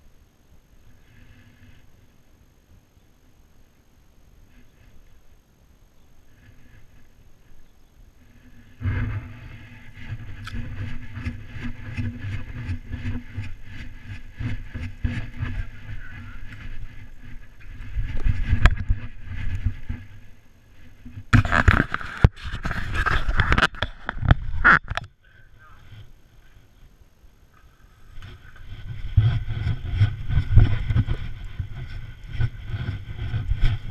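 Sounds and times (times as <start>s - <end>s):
hand rubbing camera housing: 21.4s - 25.1s.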